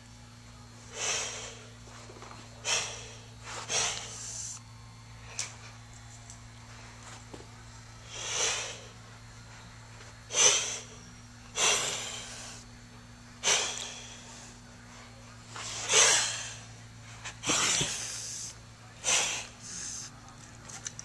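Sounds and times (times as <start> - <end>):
kitten hissing: 0.9 - 1.6, 2.6 - 4.6, 8.0 - 8.9, 10.3 - 10.9, 11.6 - 12.6, 13.4 - 14.3, 15.6 - 16.6, 17.4 - 20.1.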